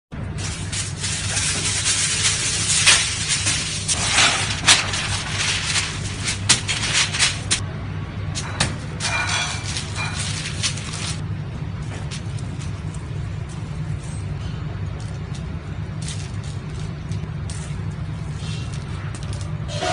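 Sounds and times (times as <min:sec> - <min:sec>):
low kitchen hum: 0:00.1 - 0:19.9
plastic sheet rustling: 0:00.2 - 0:07.6, 0:08.8 - 0:11.2, 0:11.8 - 0:14.2, 0:14.9 - 0:19.6
plastic sheet snapping: 0:00.6 - 0:07.6.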